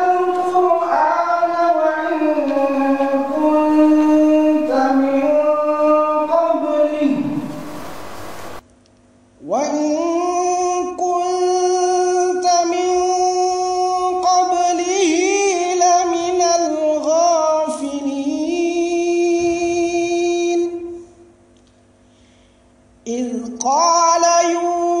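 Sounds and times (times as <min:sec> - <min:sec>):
man chanting melodically: 0:00.0 - 0:08.6.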